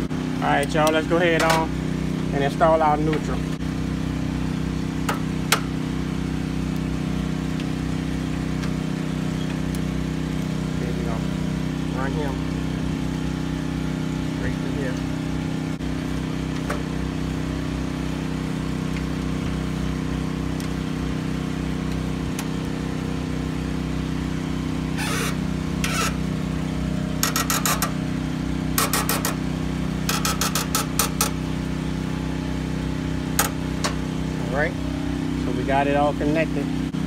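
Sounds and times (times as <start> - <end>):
low engine drone: 0.0 - 37.0.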